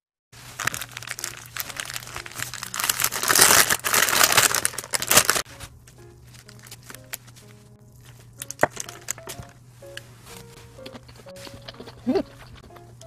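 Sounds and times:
paper wrapper crinkling: 0:00.4 - 0:09.6.

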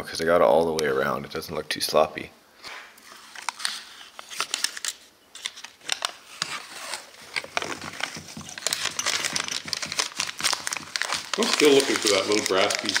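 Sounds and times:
tape liner crackling when peeled: 0:03.3 - 0:13.0.

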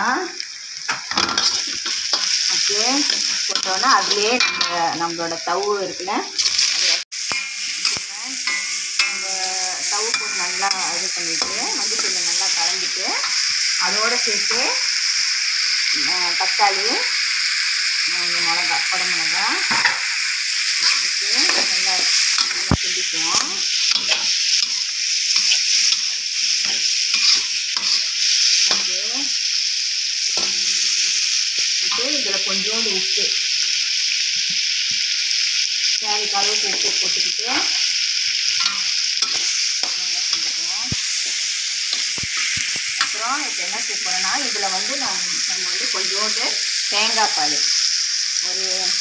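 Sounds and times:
food sizzling in oil: 0:00.0 - 0:49.0
spatula scraping a metal pan: 0:25.4 - 0:28.1.

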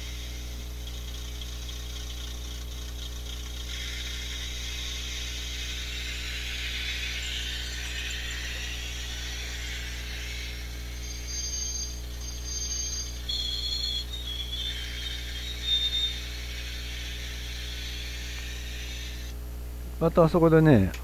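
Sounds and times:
diesel engine sound effect: 0:00.0 - 0:19.3
model train motor whirring: 0:00.0 - 0:19.3
short high tones: 0:04.9 - 0:16.5.

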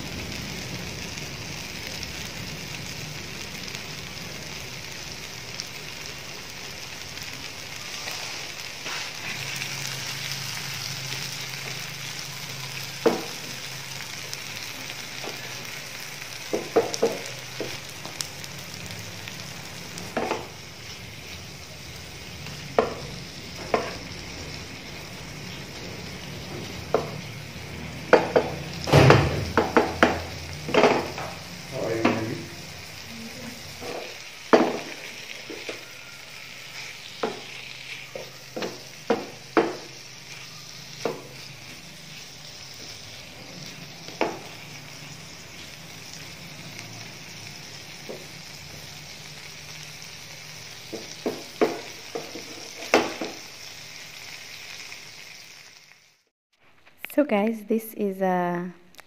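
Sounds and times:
meat sizzling in a frying pan: 0:00.0 - 0:56.3
wooden spatula knocking on pan: 0:13.0 - 0:13.3, 0:16.5 - 0:17.8, 0:22.8 - 0:23.0, 0:28.1 - 0:31.3, 0:34.5 - 0:35.8, 0:38.2 - 0:39.9, 0:50.9 - 0:53.4.

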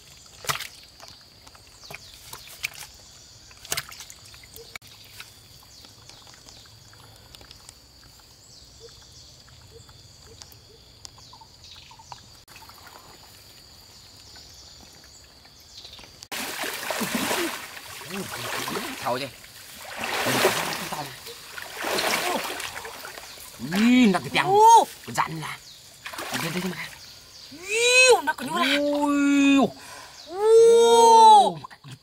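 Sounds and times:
fish splashing in shallow water: 0:00.0 - 0:08.4, 0:16.2 - 0:25.1, 0:26.0 - 0:27.2
people wading through water: 0:16.3 - 0:27.7.

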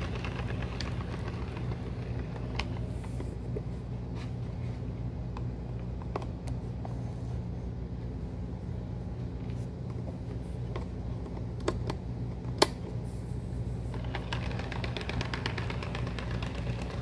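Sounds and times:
wheels clicking on track: 0:00.0 - 0:02.6, 0:14.0 - 0:17.0.

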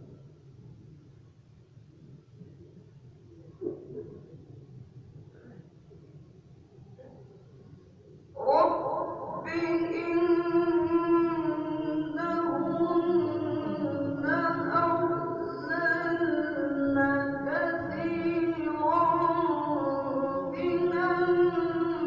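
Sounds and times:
man chanting melodic recitation: 0:08.4 - 0:22.0.

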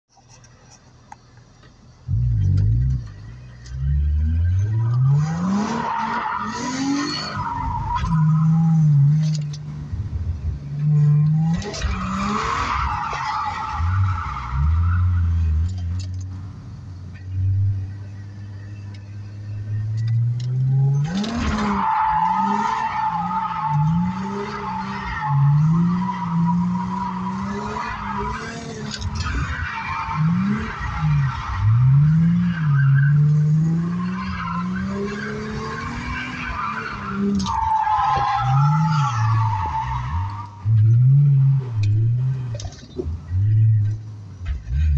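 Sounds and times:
car engine revving: 0:02.0 - 0:16.4, 0:17.1 - 0:44.9.

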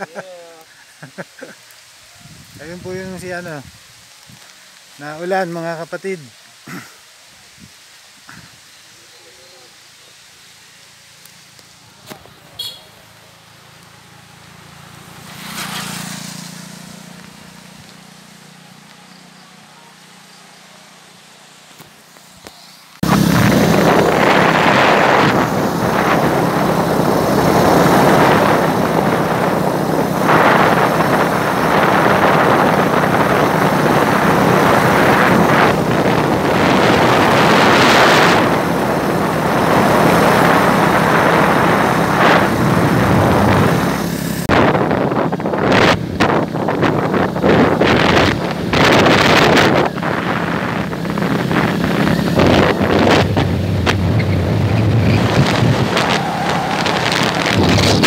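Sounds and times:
wind rushing over microphone: 0:02.2 - 0:04.4, 0:23.0 - 0:58.0
motorcycle engine hum: 0:08.3 - 0:58.0
vehicle passing: 0:12.1 - 0:21.6, 0:22.6 - 0:58.0.

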